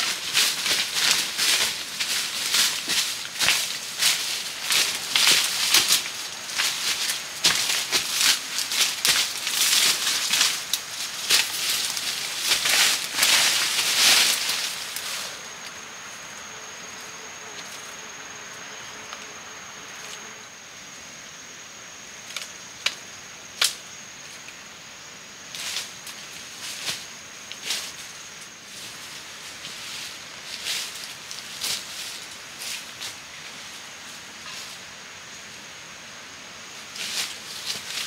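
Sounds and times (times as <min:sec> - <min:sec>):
leaves rustling and crackling: 0:00.0 - 0:20.7, 0:22.1 - 0:38.0
high-pitched insect drone: 0:00.0 - 0:26.0.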